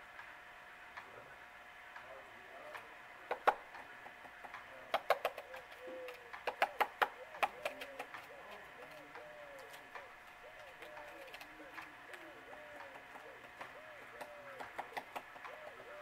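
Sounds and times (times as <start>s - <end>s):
woodpecker tapping on bark: 2.7s - 15.8s
bird cooing: 4.7s - 16.0s.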